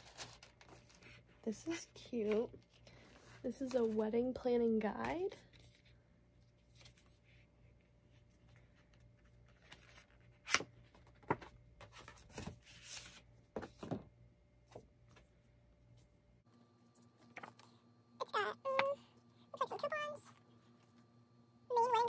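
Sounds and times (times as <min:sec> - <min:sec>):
paper cards rustling: 0:00.0 - 0:04.2, 0:04.9 - 0:07.5, 0:08.1 - 0:14.0.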